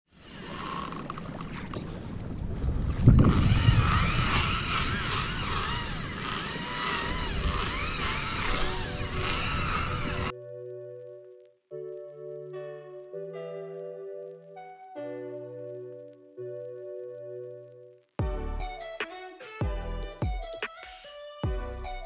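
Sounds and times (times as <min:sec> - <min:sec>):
fishing reel drag whining: 0:00.1 - 0:01.9, 0:03.2 - 0:10.3
water noise: 0:00.1 - 0:10.3
wind noise on microphone: 0:01.7 - 0:10.3.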